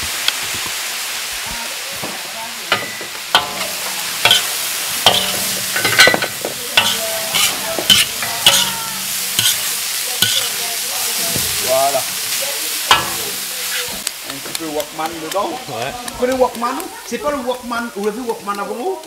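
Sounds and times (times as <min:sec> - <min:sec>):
food sizzling: 0:00.0 - 0:19.0
metal ladle clanking against wok: 0:02.7 - 0:14.9.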